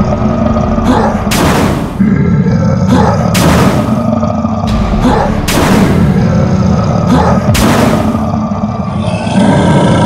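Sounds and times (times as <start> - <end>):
background music: 2.6 - 10.0.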